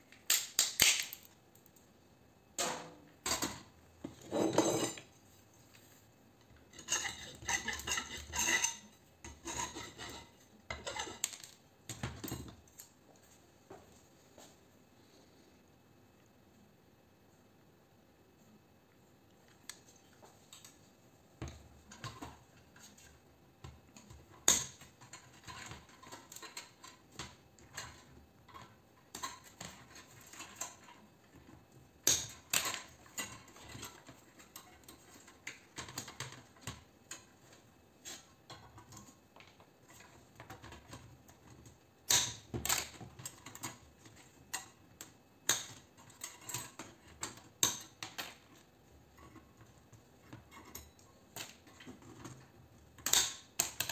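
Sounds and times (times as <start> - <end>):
hand tools clicking and snipping: 53.0 - 53.9.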